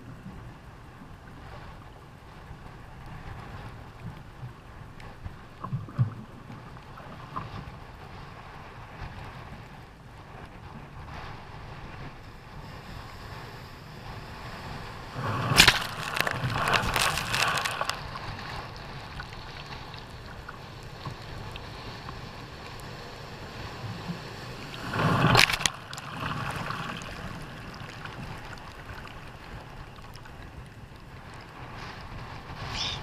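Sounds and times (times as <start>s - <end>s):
rush of wind and water: 0.0s - 33.0s
jet ski riding through surf: 6.2s - 33.0s.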